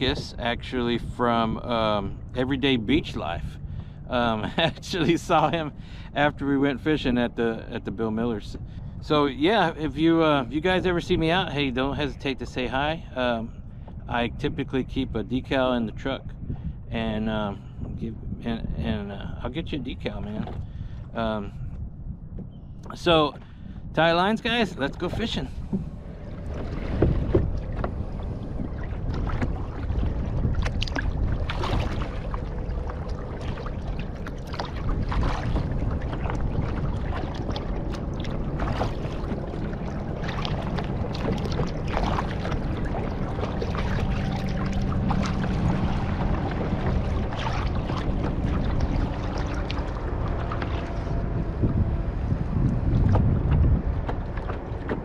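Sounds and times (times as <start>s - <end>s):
wind rumble on microphone: 0.0s - 55.0s
paddle splashing in water: 25.0s - 55.0s.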